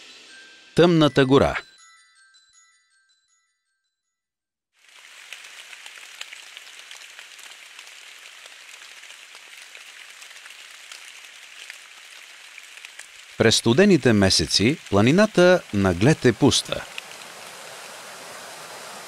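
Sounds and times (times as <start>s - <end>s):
rain patter: 4.8s - 19.0s.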